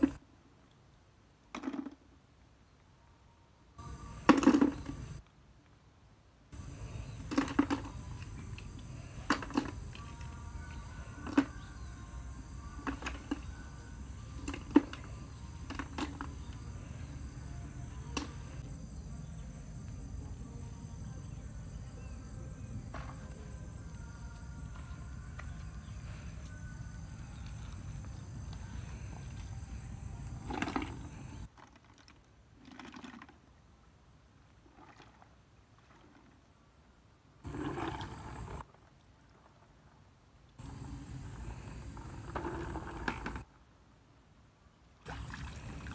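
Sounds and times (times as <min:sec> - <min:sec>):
faint insect buzz: 0:03.8 - 0:05.2, 0:06.6 - 0:31.5, 0:40.6 - 0:43.4
shells knocking in plastic bucket: 0:04.2 - 0:05.1
bucket swishing in pond water: 0:30.3 - 0:33.4, 0:37.5 - 0:39.6, 0:40.6 - 0:43.4, 0:45.1 - 0:45.9.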